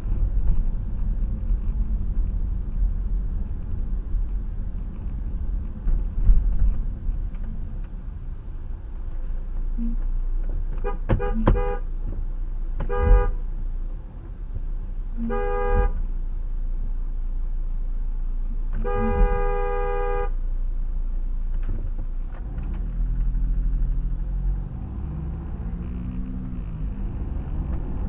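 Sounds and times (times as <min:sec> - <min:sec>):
car engine running: 0:00.0 - 0:28.0
car horn honking: 0:10.8 - 0:11.9, 0:12.8 - 0:13.5, 0:15.2 - 0:16.1, 0:18.8 - 0:20.4.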